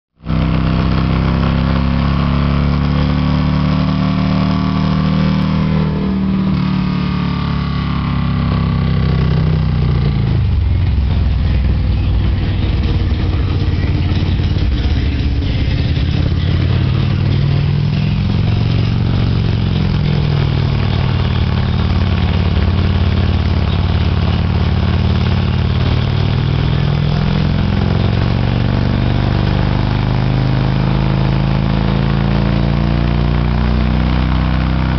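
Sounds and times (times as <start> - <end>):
motorcycle engine revving: 0.2 - 34.9.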